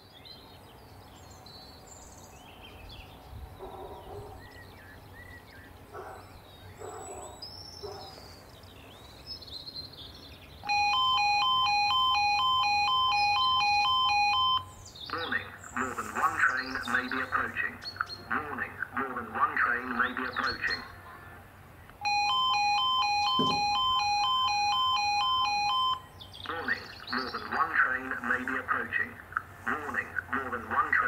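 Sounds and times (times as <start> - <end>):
birds chirping: 0.0 - 31.0
level crossing two-tone alarm: 10.6 - 14.8, 22.0 - 26.1.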